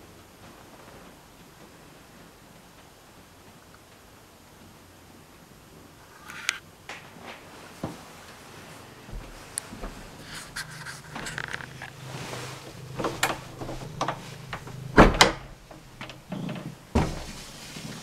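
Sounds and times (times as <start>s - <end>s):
wooden door knocks and clacks: 13.0s - 17.4s.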